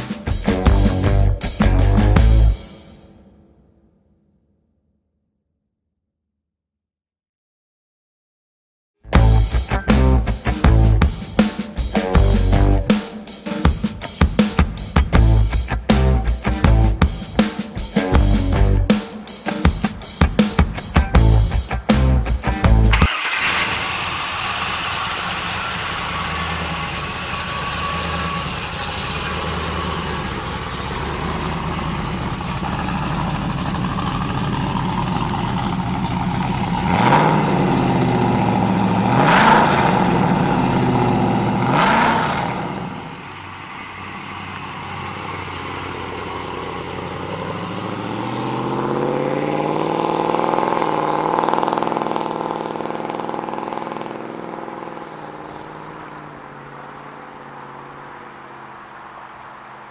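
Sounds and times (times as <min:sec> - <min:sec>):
car engine idling and revving: 0:00.0 - 0:03.3, 0:09.1 - 0:13.0, 0:14.6 - 0:18.9, 0:20.9 - 0:59.9
car pulling away: 0:00.0 - 0:03.5, 0:21.2 - 0:59.9.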